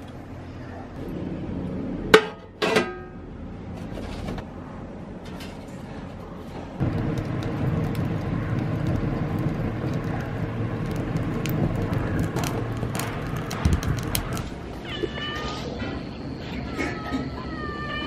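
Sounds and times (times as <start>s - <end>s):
low roar of flames: 0.0s - 2.2s, 3.3s - 16.6s
fire crackling and popping: 6.8s - 14.8s
cat meowing: 14.8s - 15.7s.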